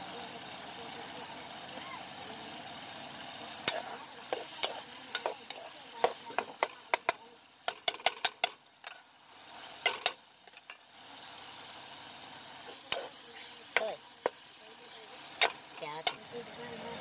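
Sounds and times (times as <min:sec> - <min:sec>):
gravy sizzling: 0:00.0 - 0:17.0
metal ladle scraping pan: 0:03.6 - 0:09.0, 0:09.8 - 0:10.8.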